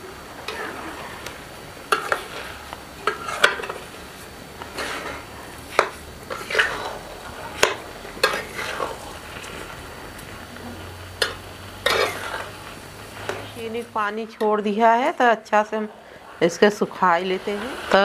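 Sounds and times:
metal spatula scraping metal pan: 0.5s - 1.0s, 1.9s - 3.9s, 4.7s - 9.6s, 11.2s - 14.6s.

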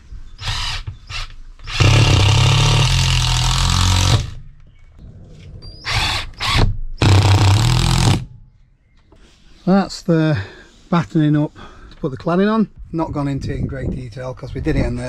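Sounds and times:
impact driver driving screws: 0.4s - 4.4s, 5.9s - 8.3s.

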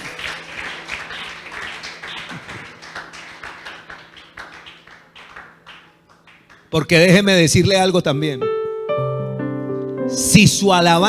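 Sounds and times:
people clapping: 0.0s - 7.2s.

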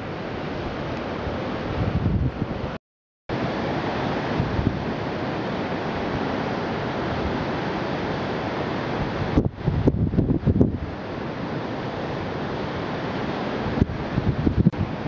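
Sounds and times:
wind on microphone: 0.0s - 2.8s, 4.2s - 5.1s, 8.8s - 11.6s, 12.5s - 15.0s.

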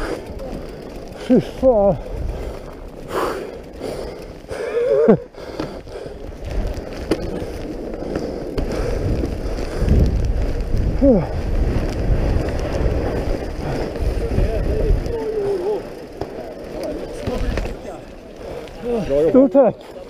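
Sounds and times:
bike tyres rolling over snow: 0.0s - 20.0s
wind on microphone: 1.3s - 3.2s, 5.8s - 16.0s.

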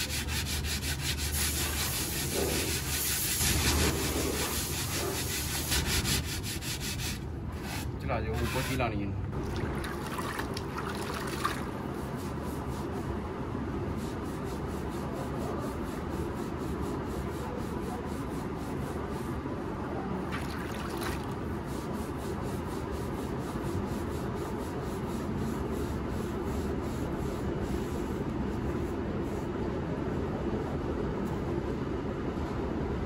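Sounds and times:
wet sponge rubbing clay: 0.0s - 8.9s, 11.5s - 13.1s, 13.9s - 19.4s, 21.0s - 29.5s
steady low hum: 0.0s - 33.0s
sponge rinsed in bucket of water: 9.4s - 11.8s, 20.3s - 21.4s.

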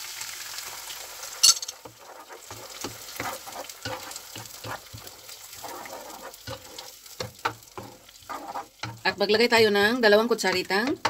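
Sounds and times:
faint sizzle: 0.0s - 11.0s.

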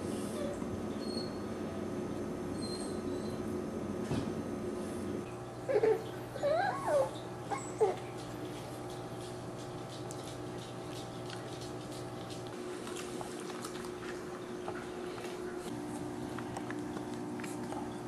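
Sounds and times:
steady low hum: 0.0s - 18.0s
puppies yipping and whining: 5.6s - 8.2s.

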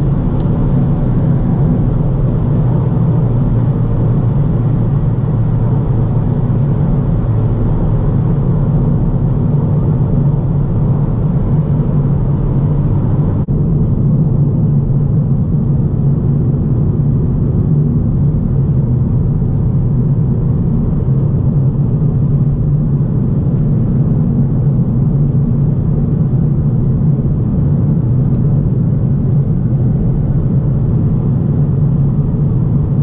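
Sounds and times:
tyre and road rumble: 0.0s - 14.5s
car engine droning: 0.0s - 33.0s.

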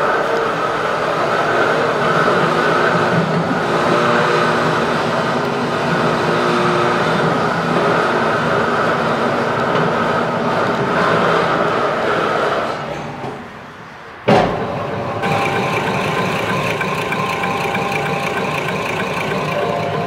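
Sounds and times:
mixing grinder running: 15.2s - 20.0s.

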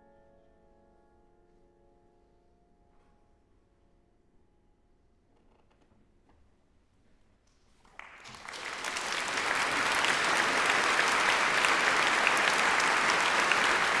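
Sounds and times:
audience applause: 7.9s - 14.0s.

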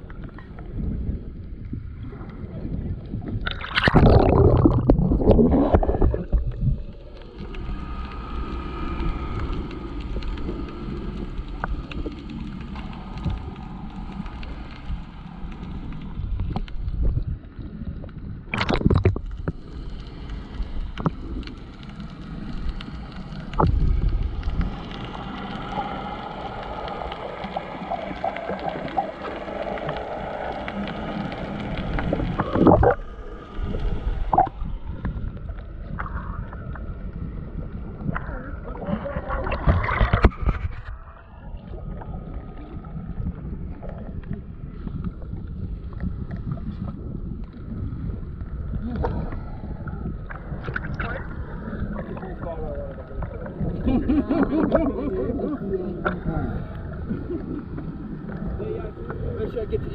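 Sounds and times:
muffled underwater gurgle: 0.0s - 59.9s
water splashing: 3.3s - 16.8s, 18.5s - 59.9s.

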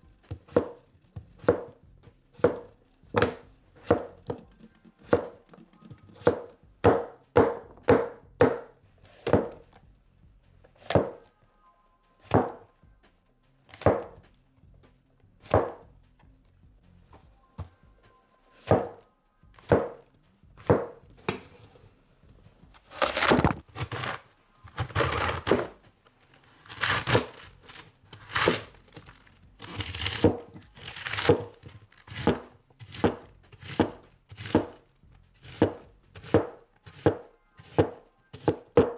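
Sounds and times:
knife chopping on wooden board: 0.3s - 0.8s, 1.4s - 1.8s, 2.4s - 9.6s, 10.8s - 11.2s, 12.3s - 12.6s, 13.7s - 14.2s, 15.4s - 15.8s, 18.6s - 19.0s, 19.6s - 20.0s, 20.6s - 21.5s, 26.7s - 28.7s, 29.6s - 34.8s, 35.4s - 38.9s.

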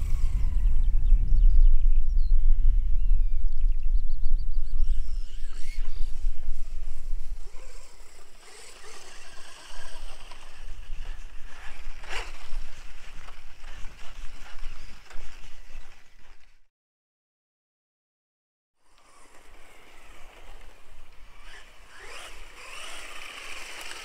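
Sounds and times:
electric rc car running on grass: 0.0s - 1.1s, 4.7s - 16.7s, 18.8s - 24.0s
wind buffeting microphone: 0.0s - 16.5s.

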